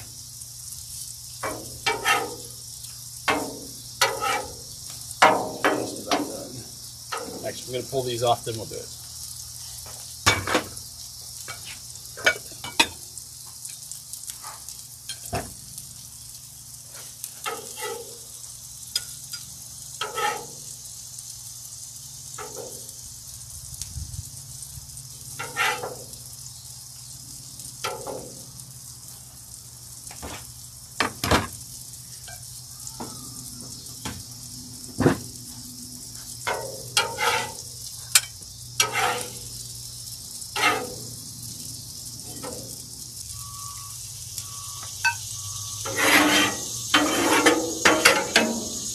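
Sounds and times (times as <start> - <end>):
food sizzling on griddle: 0.0 - 48.9
metal spatula scraping griddle: 1.4 - 2.6, 3.3 - 6.4, 16.9 - 18.3, 19.0 - 20.7, 25.4 - 26.2, 36.5 - 39.5, 40.5 - 41.2, 45.8 - 48.9.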